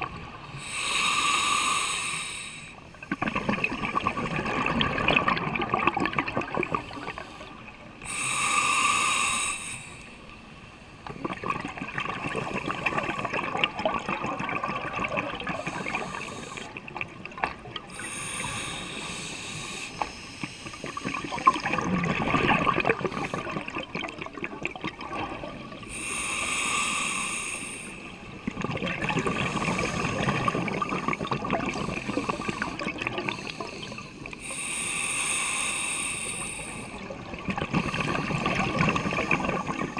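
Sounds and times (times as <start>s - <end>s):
hissing regulator inhalations: 0.5s - 3.4s, 6.7s - 10.3s, 15.6s - 16.9s, 17.9s - 21.4s, 25.8s - 28.2s, 29.2s - 37.1s
bubbling exhalation: 3.1s - 7.2s, 11.1s - 16.2s, 20.9s - 25.6s, 28.5s - 33.5s, 37.4s - 39.9s.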